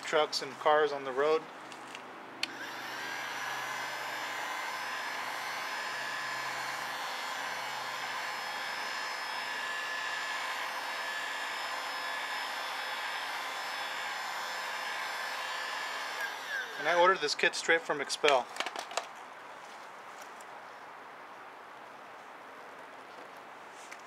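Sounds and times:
heat gun blowing air: 0:02.4 - 0:17.3.

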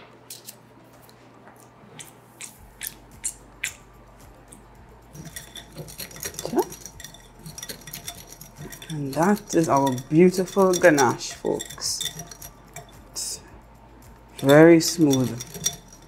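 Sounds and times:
whisk clinking against glass bowl: 0:05.1 - 0:13.4, 0:14.2 - 0:16.0.

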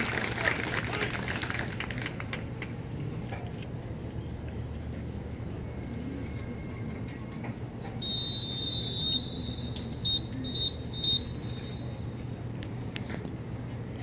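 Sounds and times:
low stadium rumble: 0:00.0 - 0:14.0
whistle blasts: 0:08.0 - 0:12.2.

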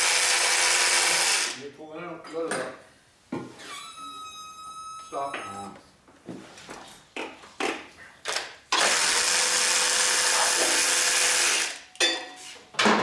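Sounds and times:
power tool whirring: 0:00.0 - 0:01.6, 0:08.8 - 0:11.8.

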